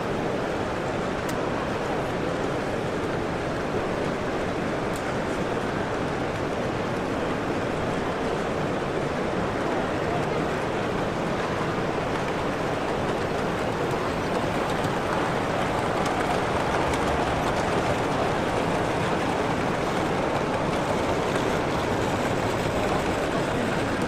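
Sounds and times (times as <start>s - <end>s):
distant crowd voices: 0.0s - 24.0s.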